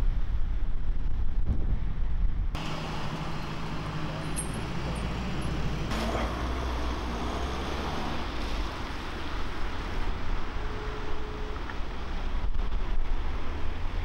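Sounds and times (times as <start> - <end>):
wind buffeting microphone: 0.0 - 2.6
ambulance engine rumble: 0.0 - 14.0.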